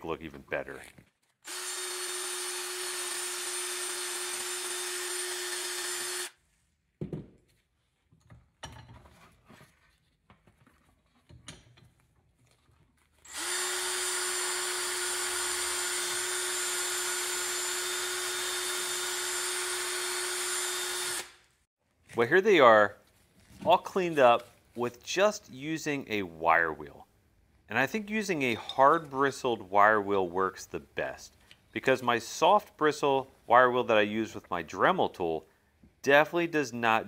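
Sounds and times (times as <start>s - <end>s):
drill spinning wire wheel on metal: 1.4s - 6.4s, 13.3s - 21.4s.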